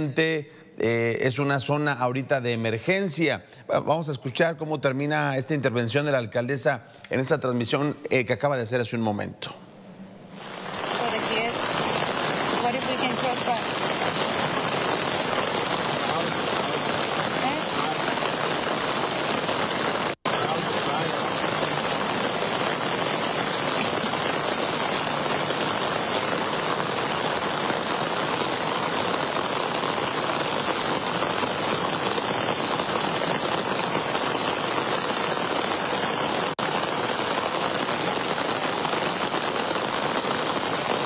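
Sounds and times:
rain on flooded street: 10.2 - 41.0
floodwater running: 10.3 - 41.0.

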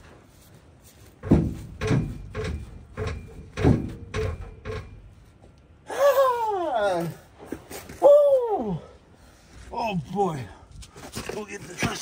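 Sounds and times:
metal joint creaking squeaks: 1.2 - 5.3.

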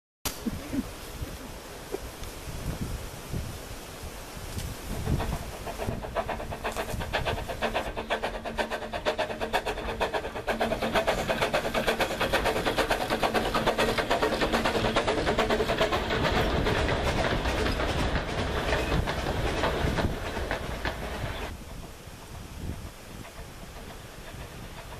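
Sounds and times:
steam locomotive exhaust beats: 0.4 - 24.9
carriages rolling on rails: 4.4 - 24.9.

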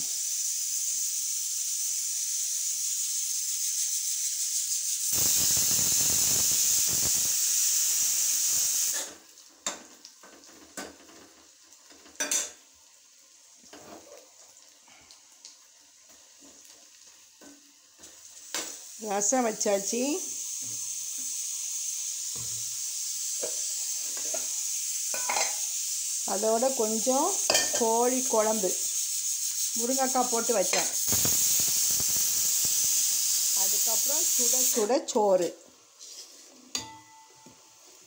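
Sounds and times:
hot oil sizzling: 0.0 - 38.0
dishes clinking: 12.2 - 12.6, 25.2 - 25.6, 27.5 - 27.9, 36.7 - 37.6.

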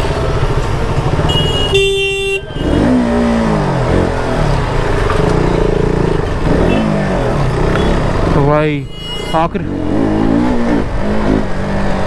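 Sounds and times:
motorcycle engine revving: 0.0 - 12.0
vehicle horn blaring: 1.2 - 3.0, 6.5 - 8.0, 8.8 - 9.6.

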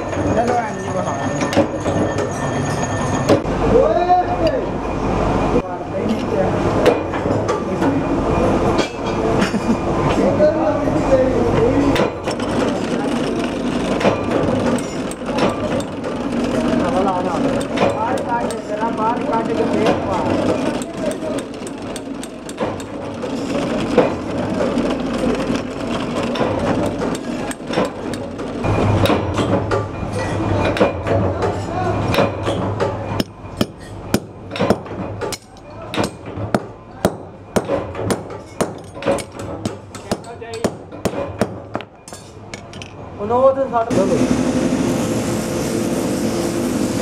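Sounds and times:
hammer striking metal: 17.5 - 18.7, 20.5 - 24.2, 26.3 - 42.9.

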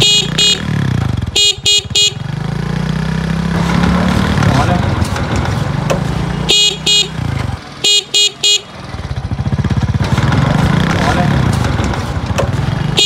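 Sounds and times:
electric horn beeps: 0.0 - 0.7, 1.4 - 2.2, 6.5 - 7.2, 7.8 - 8.7
motorcycle engine running: 0.0 - 13.0.

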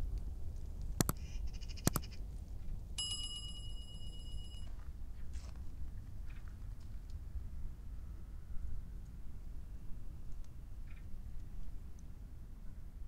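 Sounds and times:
low background rumble: 0.0 - 13.0
sharp mouse clicks: 1.0 - 2.2
electronic bell ding: 3.0 - 4.7.

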